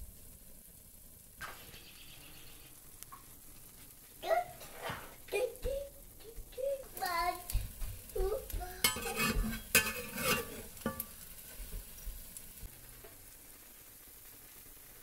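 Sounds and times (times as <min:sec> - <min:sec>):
oil sizzling: 0:00.0 - 0:15.0
metal spatula scraping skillet: 0:04.5 - 0:05.3, 0:08.8 - 0:11.8.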